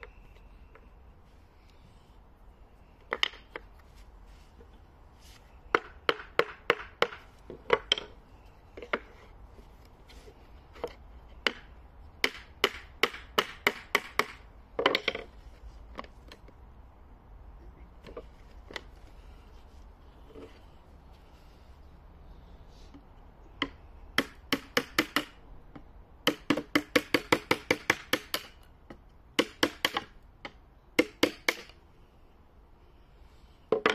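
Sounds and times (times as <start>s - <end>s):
hammer knocking wooden wedges: 5.7s - 8.2s, 23.6s - 31.7s.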